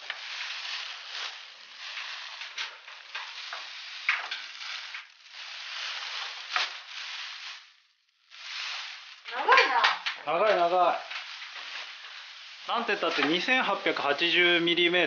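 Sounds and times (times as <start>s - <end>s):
plastic film crackles: 0.0s - 15.0s
plastic wrapped insulation rustling: 0.0s - 15.0s.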